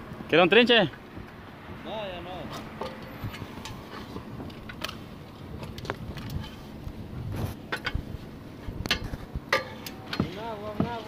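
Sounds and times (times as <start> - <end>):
knocks and scrapes on roof: 9.0 - 11.0.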